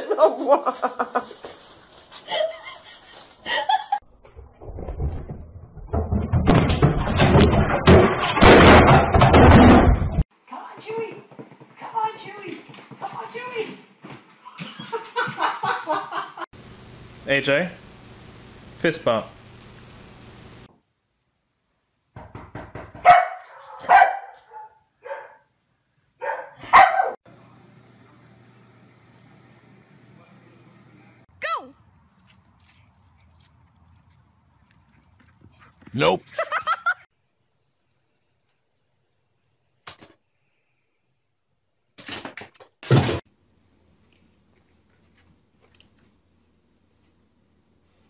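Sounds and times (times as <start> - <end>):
tv toppling and clattering: 4.7 - 10.2
dog barking: 23.0 - 25.5, 26.2 - 27.2.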